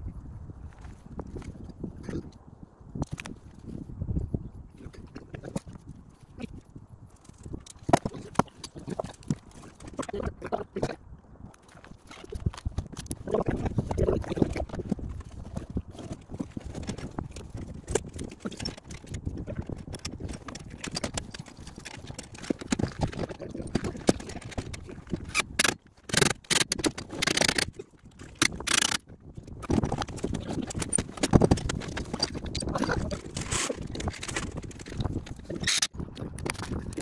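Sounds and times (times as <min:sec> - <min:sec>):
rustling and scraping: 0:04.8 - 0:10.7, 0:11.6 - 0:37.0.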